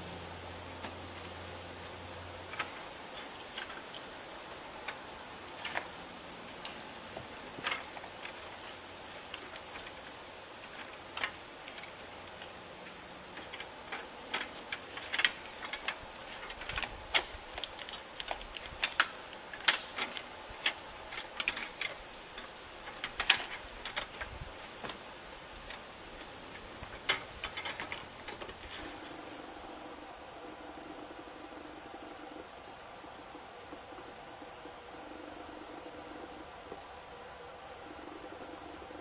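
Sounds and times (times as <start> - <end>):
clicks knocks and rustles: 6.6 - 25.0, 25.7 - 28.9.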